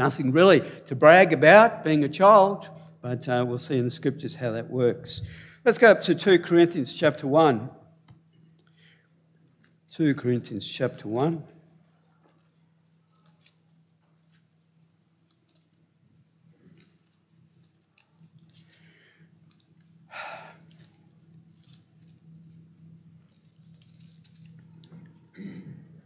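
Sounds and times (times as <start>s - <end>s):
steady low hum: 0.0s - 26.0s
paper pages rustling: 12.4s - 14.5s, 15.2s - 20.0s, 20.6s - 25.2s.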